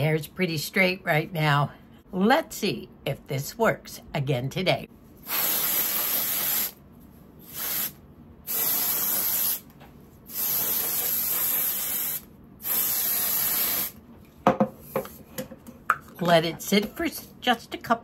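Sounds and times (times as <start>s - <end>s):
aerosol spray hissing: 5.2s - 6.8s, 7.5s - 9.6s, 10.3s - 14.0s.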